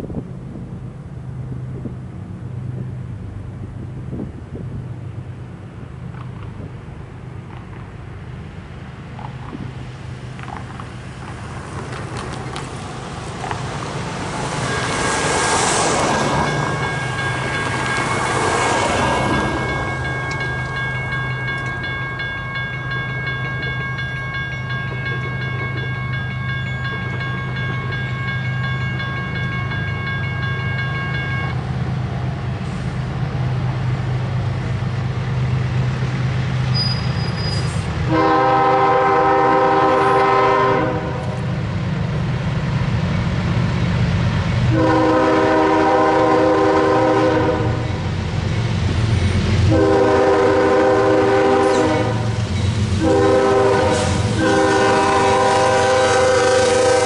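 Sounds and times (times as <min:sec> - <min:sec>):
crossing warning bell ringing: 0:14.1 - 0:31.8, 0:44.8 - 0:57.0
locomotive air horn: 0:36.8 - 0:41.4, 0:44.7 - 0:47.9, 0:49.7 - 0:52.4, 0:53.0 - 0:57.0.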